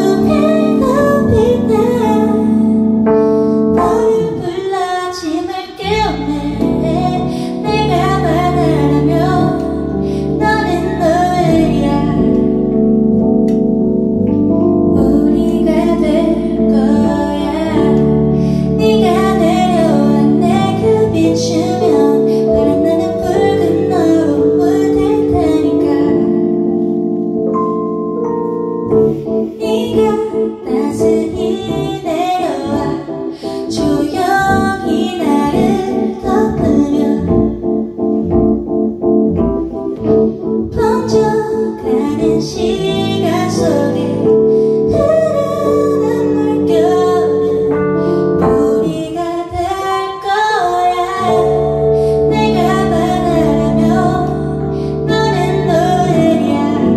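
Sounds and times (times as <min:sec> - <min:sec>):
woman singing into microphone: 0:00.0 - 0:12.8, 0:14.9 - 0:26.7, 0:29.1 - 0:37.7, 0:40.0 - 0:56.9
sustained chord accompaniment: 0:26.3 - 0:29.5.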